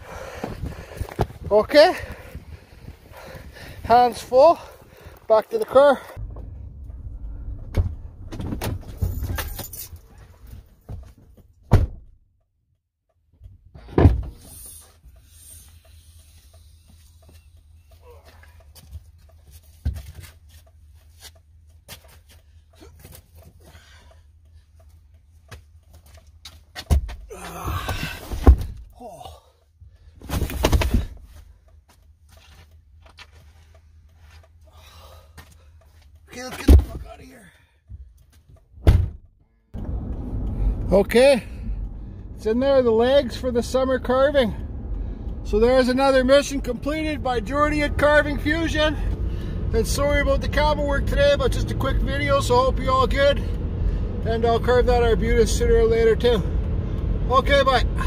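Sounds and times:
low rumble: 0:06.2 - 0:09.4, 0:39.8 - 0:50.2.

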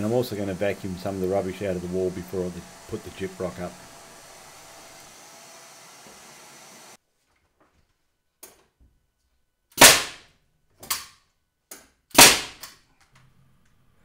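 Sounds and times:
vacuum cleaner: 0:00.0 - 0:07.0
nail gun shots into timber: 0:09.8 - 0:11.1, 0:12.1 - 0:12.8.

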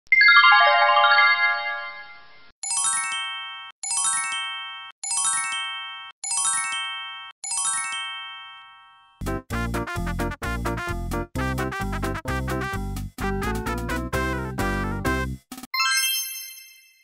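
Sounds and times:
descending chime glissando: 0:00.2 - 0:02.3, 0:15.8 - 0:17.0.

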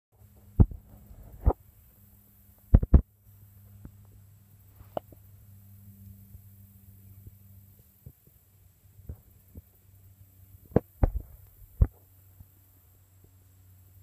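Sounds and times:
faint steady hum: 0:00.1 - 0:14.0
short low thumps: 0:00.6 - 0:01.6, 0:10.8 - 0:11.9.

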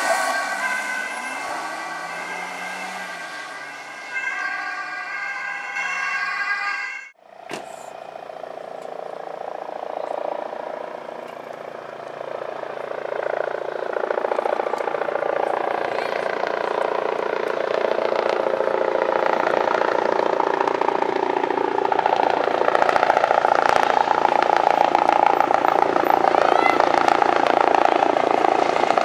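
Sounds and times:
helicopter rotor chop: 0:00.0 - 0:06.1, 0:07.4 - 0:29.0.

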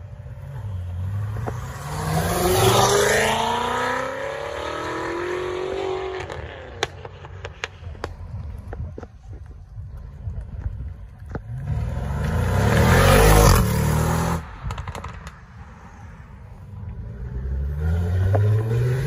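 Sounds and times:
car engine revving: 0:00.2 - 0:07.7, 0:11.4 - 0:15.4, 0:16.7 - 0:19.0.

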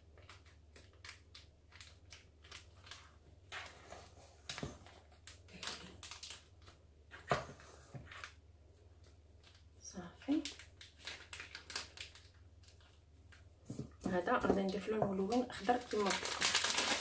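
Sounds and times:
plastic bag rustling: 0:10.3 - 0:13.0, 0:13.7 - 0:17.0.

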